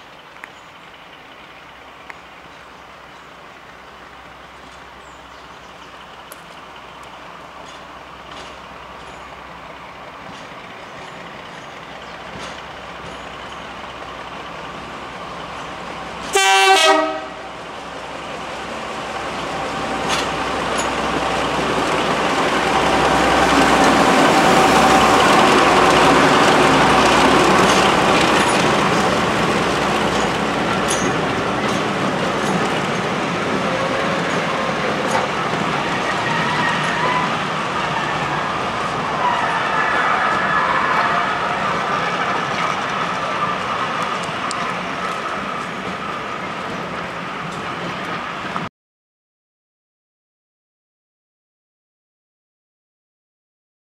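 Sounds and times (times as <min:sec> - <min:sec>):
diesel locomotive engines: 0:00.0 - 0:48.7
locomotive horn blast: 0:16.2 - 0:17.5.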